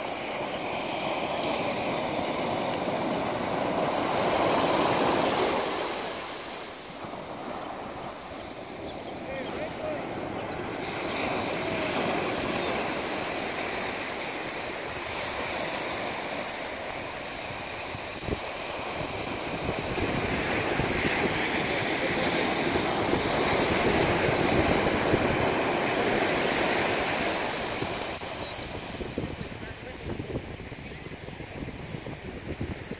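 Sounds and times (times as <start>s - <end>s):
ocean surf breaking on beach: 0.0s - 32.9s.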